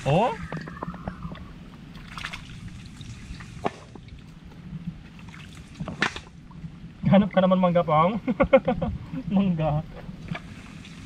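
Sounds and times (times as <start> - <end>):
muddy water sloshing and trickling: 0.0 - 7.4, 9.9 - 11.0
small clicks and splashes: 0.6 - 4.4.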